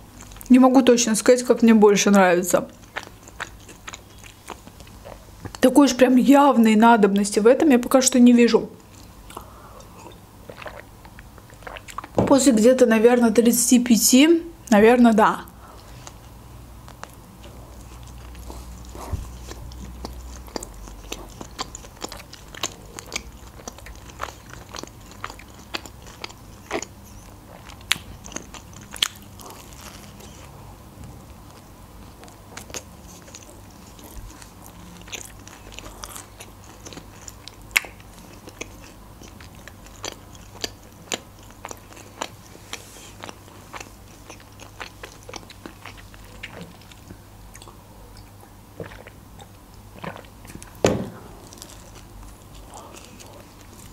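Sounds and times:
person chewing food: 0:00.1 - 0:00.5, 0:02.7 - 0:05.6, 0:08.8 - 0:12.2, 0:15.6 - 0:53.9
wet mouth clicks and crunches: 0:17.8 - 0:30.5, 0:32.2 - 0:50.8.

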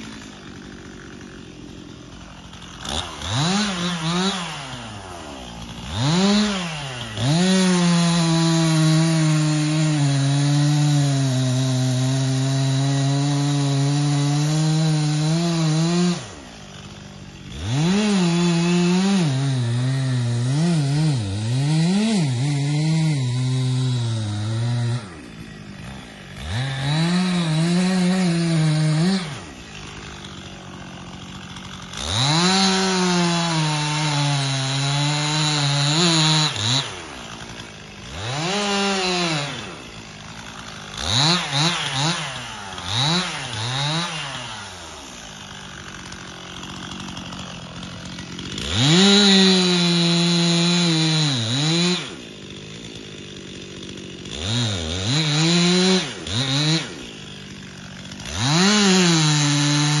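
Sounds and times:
chainsaw cutting wood: 0:00.0 - 1:00.0.

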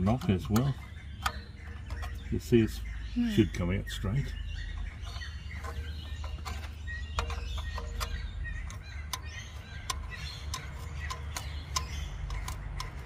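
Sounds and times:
spanner scraping metal: 0:00.0 - 0:02.8, 0:04.7 - 0:13.0
spanner clicking on metal: 0:05.1 - 0:13.0.

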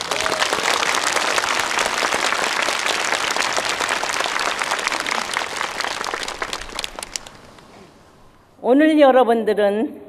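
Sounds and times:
large audience applauding: 0:00.0 - 0:07.5.

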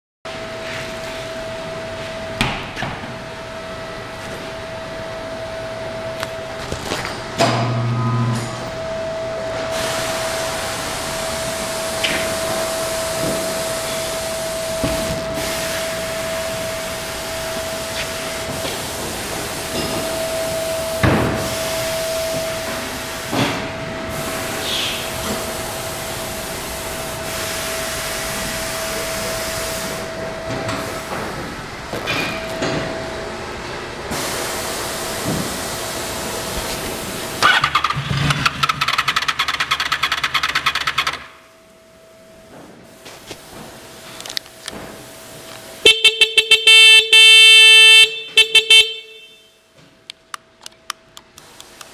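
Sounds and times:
workshop background tone: 0:00.3 - 0:51.9
motorcycle engine starter: 0:37.4 - 0:41.3.

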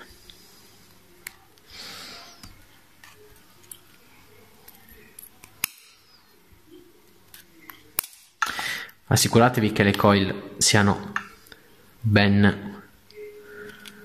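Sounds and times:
side cutters snipping wire: 0:08.0 - 0:08.3.

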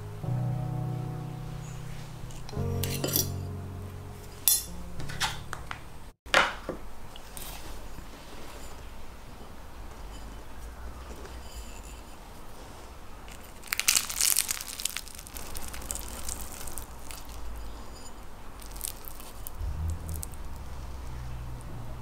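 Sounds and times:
fork crunching through pastry: 0:13.3 - 0:21.2.

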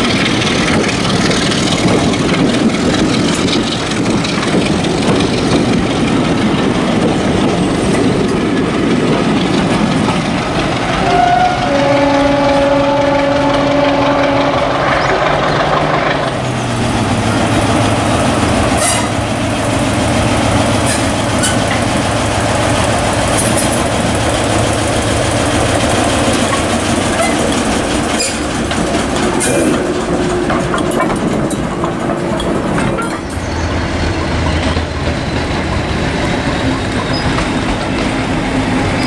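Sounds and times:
diesel engine hum and rolling: 0:00.0 - 0:39.0
wheels clicking over rail joints: 0:00.0 - 0:39.0
train horn: 0:11.0 - 0:14.9, 0:18.8 - 0:19.2.

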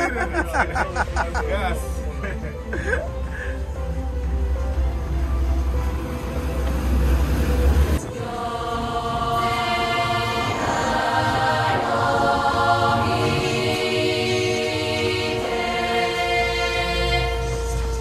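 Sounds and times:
choral chant-like singing: 0:06.2 - 0:18.0.

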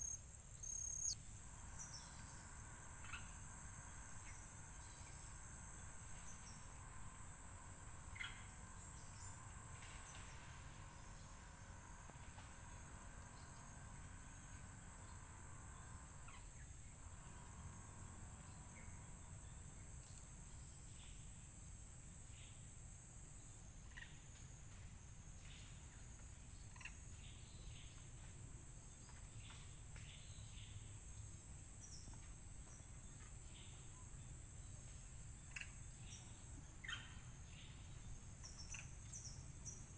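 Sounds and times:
high-pitched insect drone: 0:00.0 - 0:21.6.

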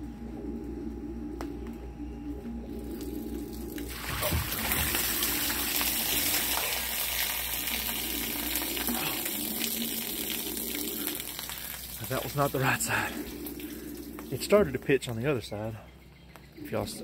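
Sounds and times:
water pouring and splashing on ground: 0:02.8 - 0:14.8.

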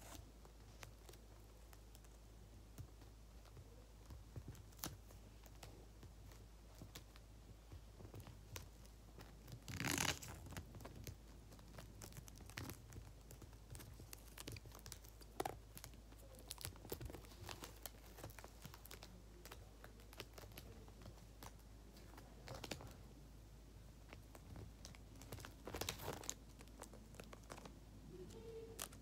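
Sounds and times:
faint paper rustling: 0:00.0 - 0:23.2, 0:23.8 - 0:29.0
sticky tape ripping: 0:09.5 - 0:10.6.

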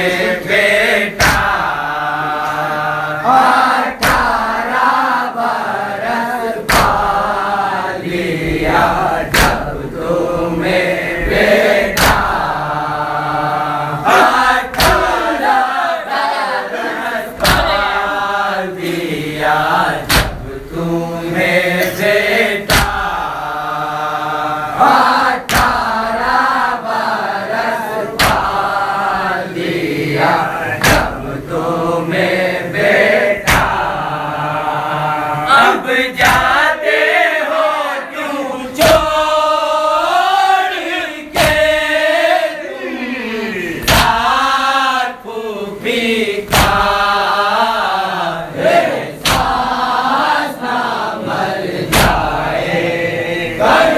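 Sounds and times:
men chanting in unison: 0:00.0 - 0:53.9
hands slapping chests: 0:01.2 - 0:02.8, 0:04.0 - 0:04.5, 0:06.6 - 0:07.2, 0:09.2 - 0:09.8, 0:11.8 - 0:12.6, 0:14.1 - 0:15.6, 0:17.4 - 0:18.1, 0:20.0 - 0:20.6, 0:21.8 - 0:23.4, 0:25.4 - 0:26.3, 0:28.2 - 0:28.8, 0:30.8 - 0:31.3, 0:33.4 - 0:34.0, 0:36.2 - 0:36.7, 0:38.8 - 0:39.3, 0:41.3 - 0:41.8, 0:43.8 - 0:44.4, 0:46.5 - 0:47.1, 0:48.7 - 0:49.8, 0:51.9 - 0:52.4.

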